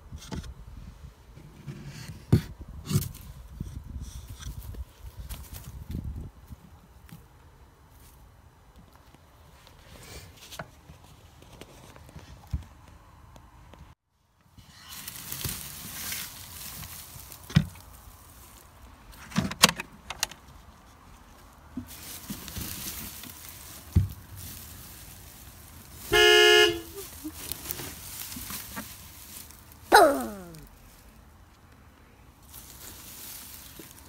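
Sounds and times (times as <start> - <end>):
straw rustling and crackling: 14.4 - 34.0.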